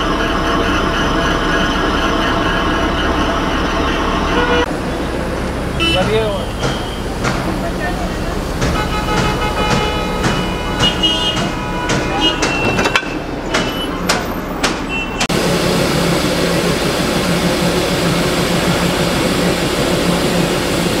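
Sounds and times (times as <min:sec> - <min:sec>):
sharp metallic knocks: 0:05.8 - 0:15.4
steam rushing with low hum: 0:15.3 - 0:21.0.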